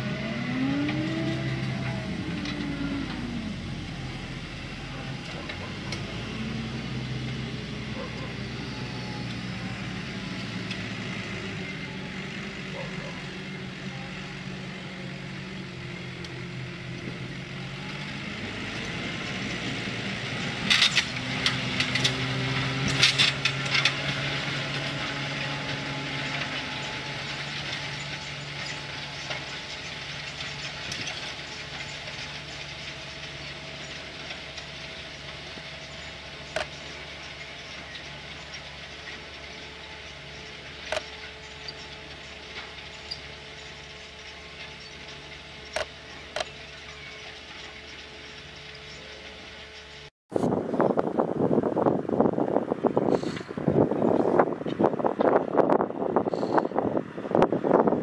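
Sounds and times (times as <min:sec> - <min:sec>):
tractor diesel engine running: 0:00.0 - 0:58.0
metallic clanks and rattles: 0:20.4 - 0:50.0.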